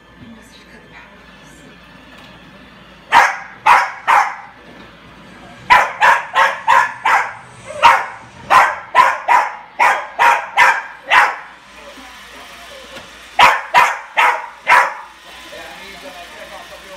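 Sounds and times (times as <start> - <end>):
small dog barking: 3.1 - 4.6, 5.7 - 11.5, 13.4 - 15.1.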